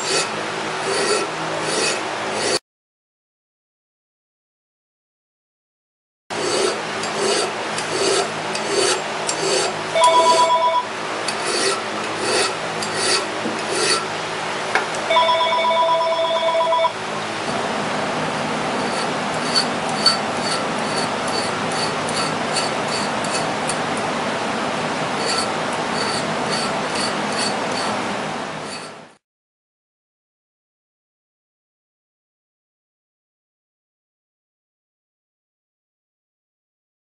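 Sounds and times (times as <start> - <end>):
hand file scraping on steel: 0.0 - 2.6, 6.3 - 10.5, 11.2 - 14.1, 18.8 - 23.8, 25.2 - 28.0, 28.6 - 29.2
telephone ringing: 10.0 - 10.9, 15.1 - 17.0.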